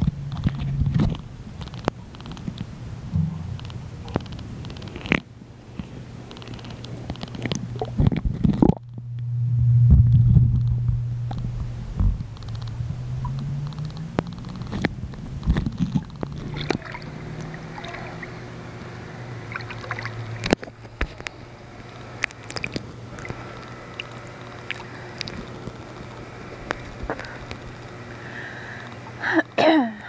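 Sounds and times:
sharp clicks and knocks: 0.0s - 9.0s, 10.1s - 16.8s
steady low hum: 0.0s - 30.0s
pool water sloshing and gurgling: 13.0s - 28.3s.

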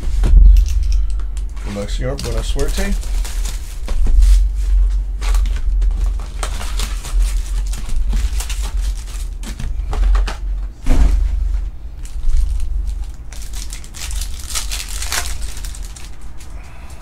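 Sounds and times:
loud knock: 0.0s - 1.1s
low handling rumble: 0.0s - 17.0s
card packs crinkling and rustling: 1.7s - 10.4s, 12.0s - 17.0s.

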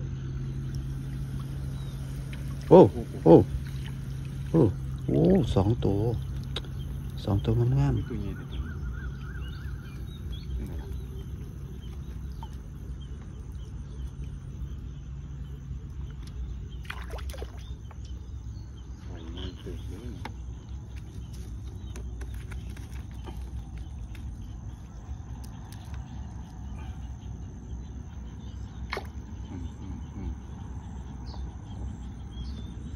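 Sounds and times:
faint bird calls: 0.0s - 32.9s
low outdoor rumble: 0.0s - 32.9s
water splashing: 0.4s - 14.8s, 15.8s - 18.3s, 28.8s - 29.3s.

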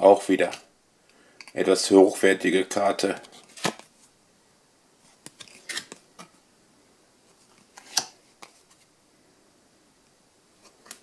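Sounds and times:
cards clicking and rustling: 3.1s - 3.9s, 5.2s - 6.4s, 7.5s - 8.9s.

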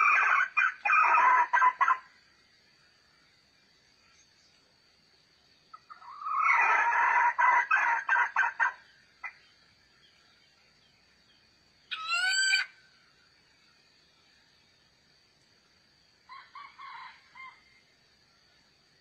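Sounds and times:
rooster crowing: 16.3s - 17.7s.

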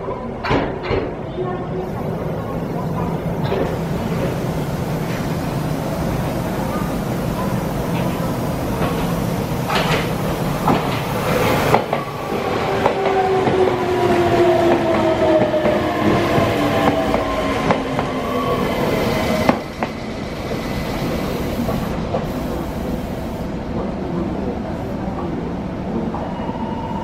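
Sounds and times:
train wheels clacking over rail joints: 6.7s - 12.1s.

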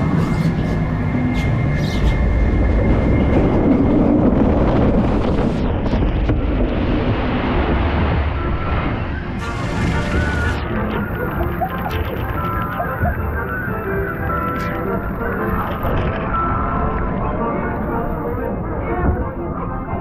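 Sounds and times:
wind buffeting microphone: 0.8s - 14.2s.

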